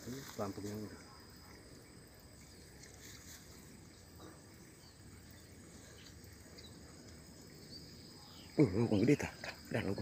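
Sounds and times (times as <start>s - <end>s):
insects chirring: 0.0s - 10.0s.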